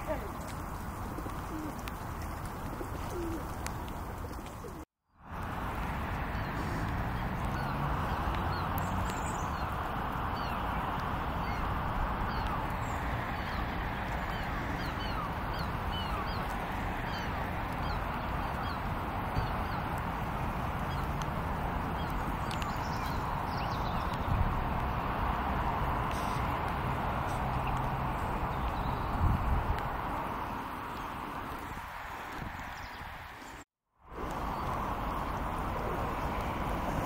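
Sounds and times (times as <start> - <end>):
small birds chirping: 6.1 - 33.6.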